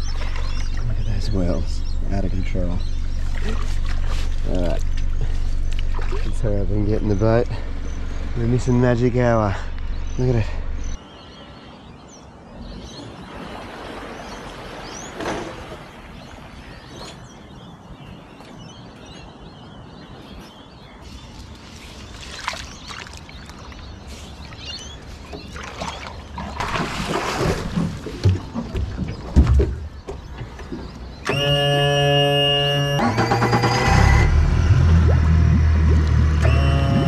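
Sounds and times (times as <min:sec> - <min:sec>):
knocks and rustling on boat: 0:03.1 - 0:07.1, 0:14.9 - 0:16.0, 0:22.2 - 0:32.6, 0:35.0 - 0:37.0.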